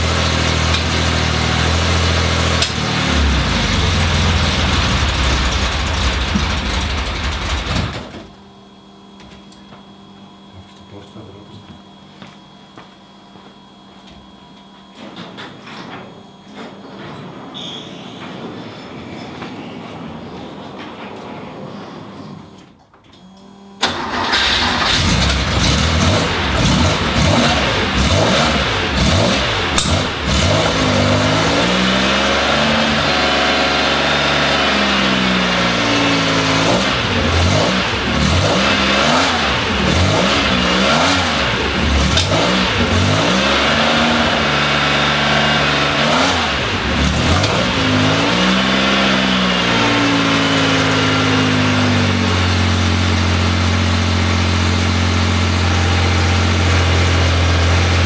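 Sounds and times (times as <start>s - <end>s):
car engine idling: 0.0s - 8.3s, 23.8s - 58.0s
car engine starting and revving: 0.0s - 8.3s, 23.8s - 58.0s.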